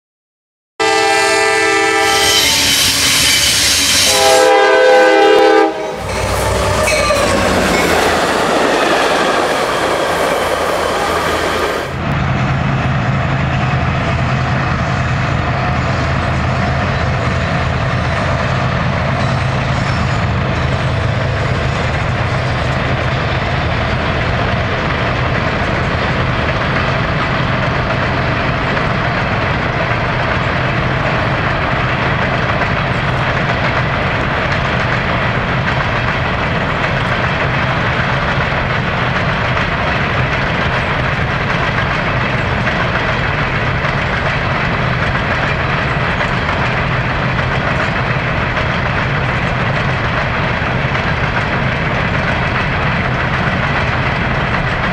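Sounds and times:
locomotive air horn: 0:00.8 - 0:07.6
train rumbling past: 0:00.8 - 0:54.9
freight cars rolling on rails: 0:02.2 - 0:54.9.

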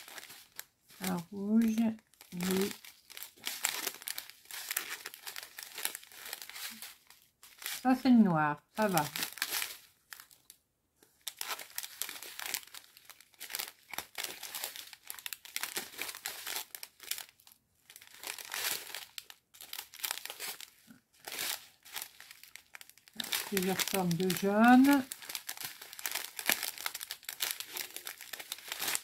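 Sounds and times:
plastic sachets crinkling: 0:00.0 - 0:08.1, 0:08.7 - 0:29.0.

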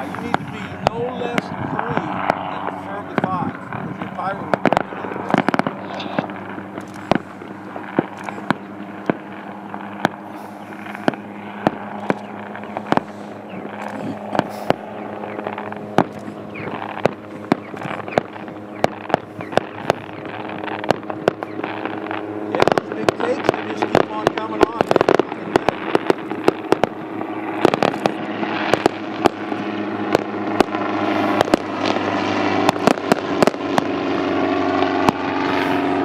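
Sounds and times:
helicopter rotor and engine hum: 0:00.0 - 0:36.0
pyrotechnics cracking and popping: 0:00.0 - 0:36.0.

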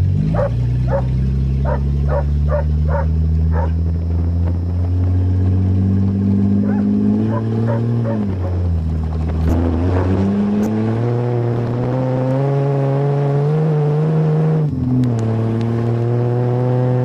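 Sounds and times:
car engine from inside cabin: 0:00.0 - 0:17.0
small dog yipping: 0:00.3 - 0:03.8, 0:06.6 - 0:08.3.

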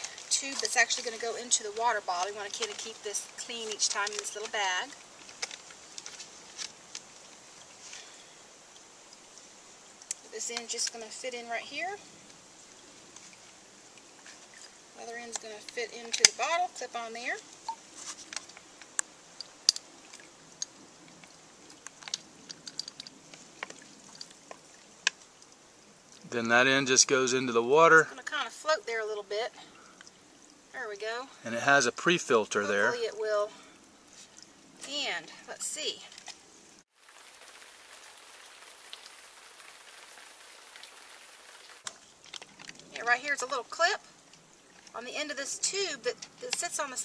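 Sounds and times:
plastic hoses clicking and crinkling: 0:00.0 - 0:08.1, 0:17.6 - 0:25.5, 0:41.6 - 0:43.2
stream trickling over rocks: 0:00.0 - 0:47.0.

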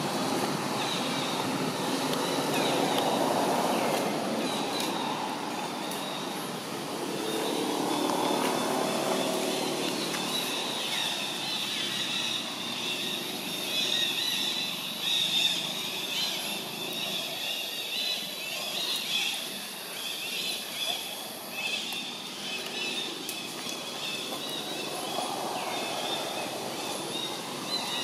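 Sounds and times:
motor vehicle hum: 0:00.0 - 0:16.9.

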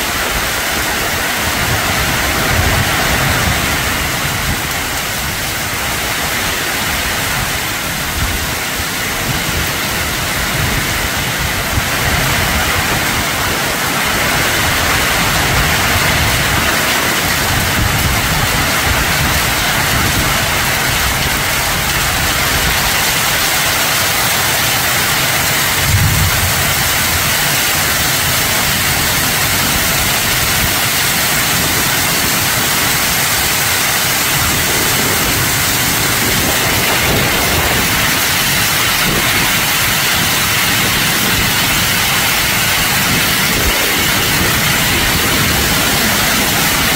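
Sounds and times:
heavy rain and hail pelting: 0:00.0 - 0:46.9.

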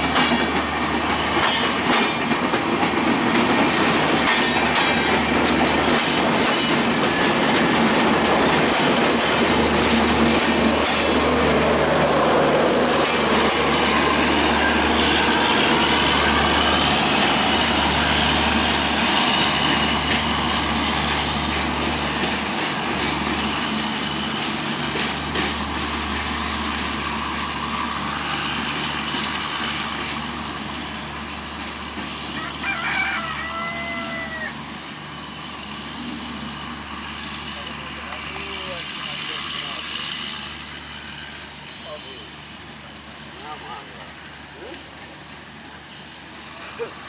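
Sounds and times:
rail joint clicks: 0:00.0 - 0:32.3
train wheels on rails: 0:00.0 - 0:47.0
rooster crowing: 0:32.3 - 0:34.6.

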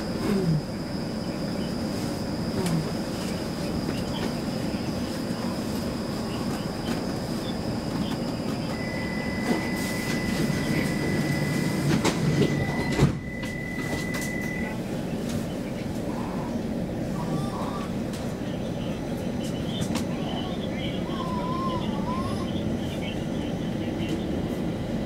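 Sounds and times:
train equipment hum and hiss: 0:00.0 - 0:25.0.

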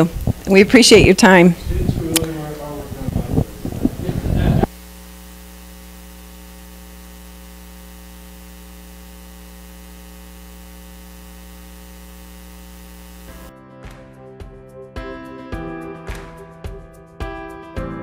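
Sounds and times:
electrical mains hum with hiss: 0:00.0 - 0:13.5.

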